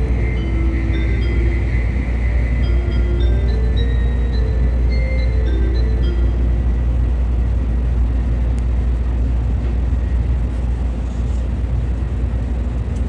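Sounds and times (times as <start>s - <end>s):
on-board chime: 0.0s - 7.4s
train rumble inside cabin: 0.0s - 13.0s.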